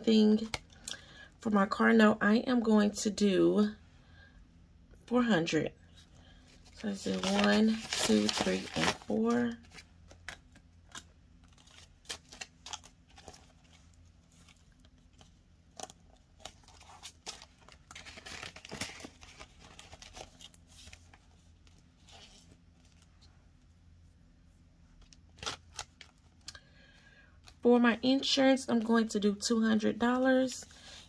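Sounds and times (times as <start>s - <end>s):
paper banknotes rustling: 6.6s - 23.1s
plastic sleeve crinkling: 6.6s - 23.1s.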